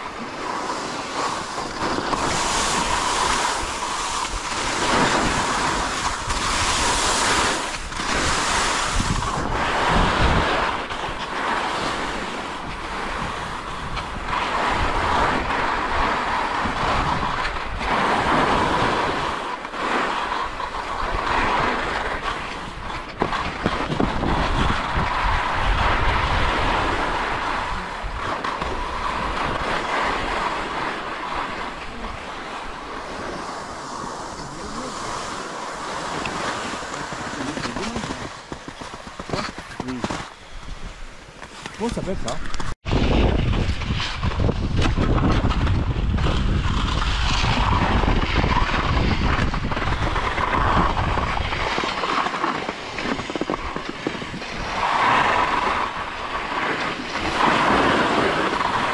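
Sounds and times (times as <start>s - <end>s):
wind on microphone: 0.0s - 58.9s.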